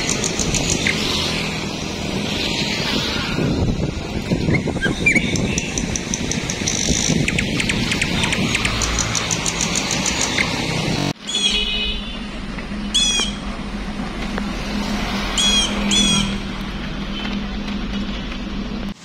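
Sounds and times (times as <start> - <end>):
road traffic rumble: 0.0 - 19.0
small birds chirping: 4.4 - 10.6.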